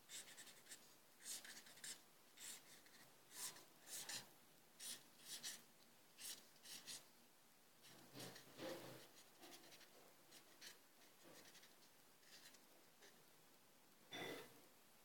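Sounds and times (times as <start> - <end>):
marker pen scratching on paper: 0.1 - 5.6, 6.2 - 7.0, 7.8 - 12.6.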